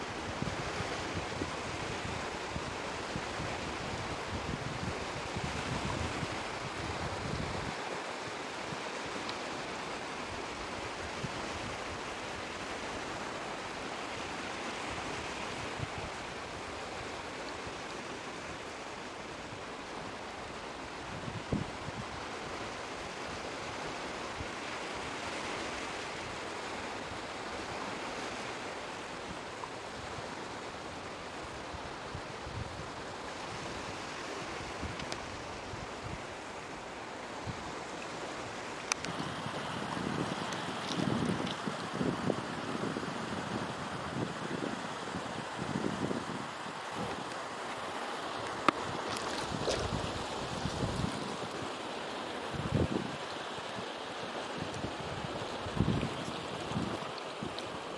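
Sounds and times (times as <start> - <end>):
sea waves washing on shore: 0.0 - 57.9
surf: 0.0 - 57.9
wind: 0.0 - 57.9
faint click: 34.9 - 35.3, 38.8 - 39.1.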